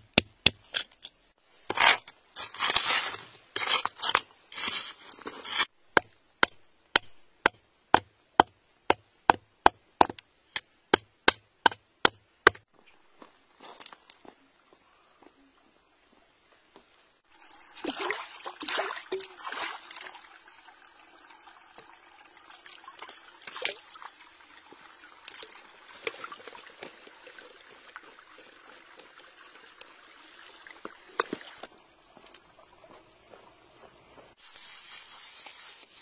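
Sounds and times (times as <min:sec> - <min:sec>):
water trickling: 0:17.3 - 0:33.4.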